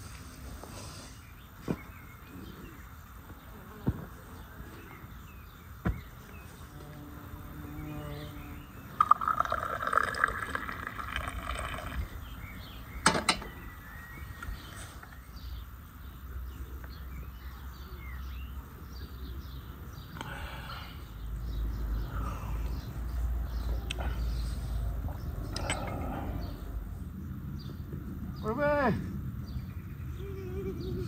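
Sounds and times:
hot drink pouring into a glass: 0:09.0 - 0:12.2.

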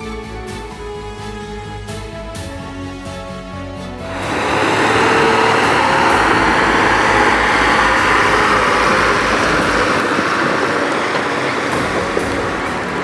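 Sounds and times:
tractor engine running: 0:04.0 - 0:13.0
tyres rolling on gravel: 0:04.2 - 0:13.0.

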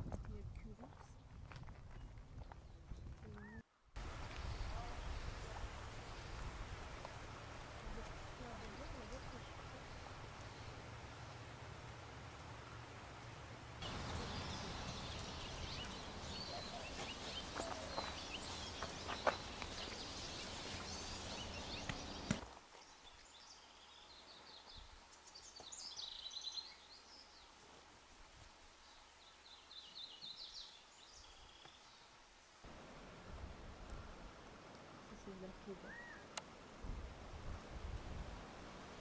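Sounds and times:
outdoor background noise: 0:00.0 - 0:39.0
songbirds chirping and twittering: 0:00.6 - 0:11.6, 0:13.8 - 0:27.8, 0:28.7 - 0:32.6.

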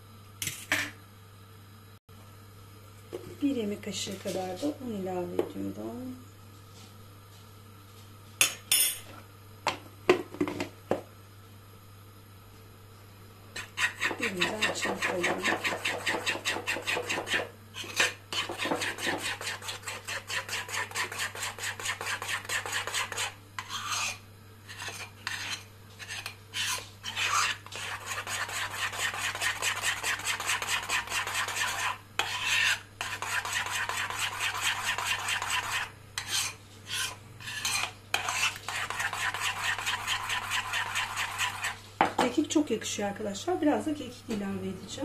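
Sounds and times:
spoon whisking in bowl: 0:13.6 - 0:42.1.

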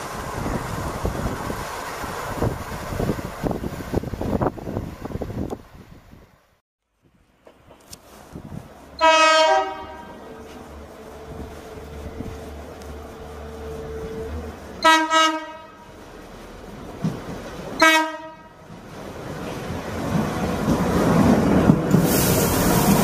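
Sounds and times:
train running past: 0:00.0 - 0:05.9, 0:07.2 - 0:23.0
train horn blasts: 0:09.0 - 0:10.5, 0:13.6 - 0:16.0, 0:17.8 - 0:18.6.

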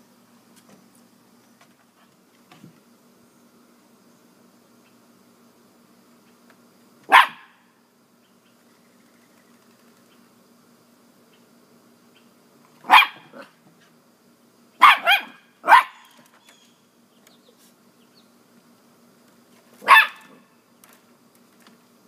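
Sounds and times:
dog barking: 0:07.1 - 0:07.6, 0:12.8 - 0:13.5, 0:14.8 - 0:16.1, 0:19.8 - 0:20.4.

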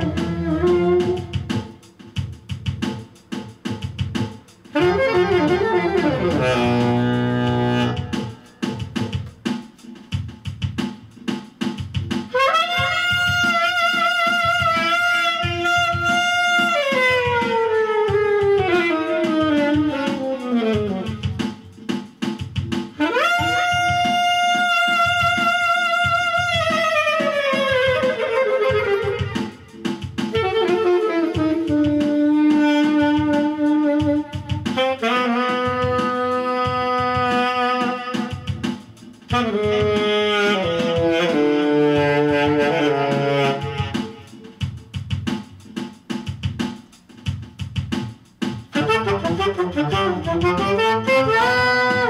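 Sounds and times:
saxophone playing long notes: 0:00.0 - 0:01.6, 0:04.7 - 0:08.5, 0:12.3 - 0:21.7, 0:22.9 - 0:44.4, 0:48.7 - 0:52.0
drum beat: 0:00.0 - 0:52.0.

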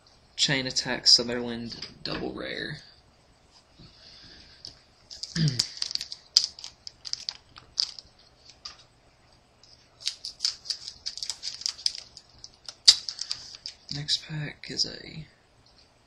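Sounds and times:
foil pack crinkling: 0:05.1 - 0:08.8, 0:10.0 - 0:14.0.

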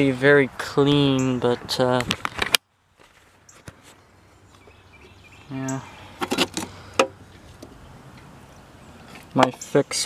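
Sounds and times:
faint outdoor background noise: 0:00.0 - 0:10.0.

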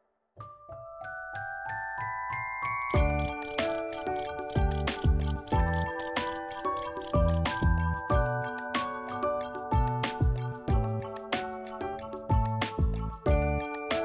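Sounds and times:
cricket chirping: 0:02.8 - 0:07.8
bouncy background music: 0:02.8 - 0:14.0.

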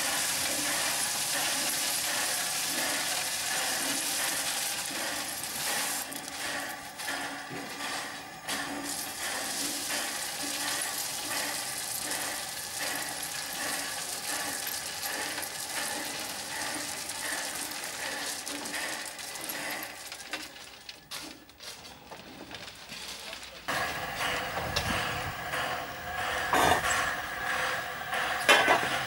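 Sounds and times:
ballast stones rattling out of hopper: 0:00.0 - 0:06.8, 0:08.5 - 0:23.7
steam locomotive exhaust beats: 0:00.0 - 0:20.7, 0:23.7 - 0:29.0.

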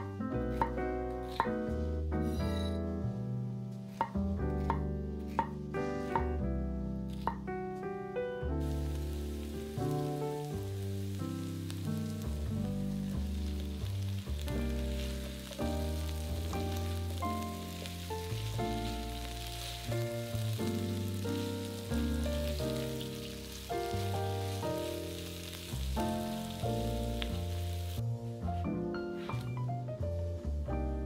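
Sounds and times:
background music: 0:00.0 - 0:31.0
vegetables sizzling in a pan: 0:08.6 - 0:28.1.

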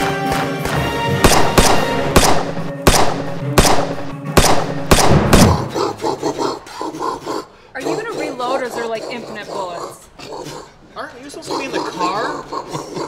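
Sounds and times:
film music score: 0:00.0 - 0:06.4
echoing pistol shots: 0:01.2 - 0:05.7.

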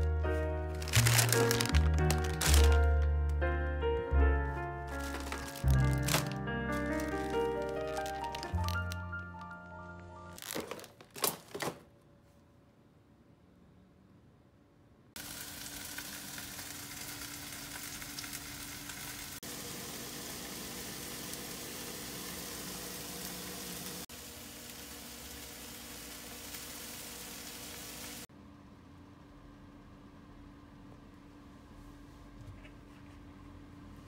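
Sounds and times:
food sizzling in a frying pan: 0:15.2 - 0:28.3.

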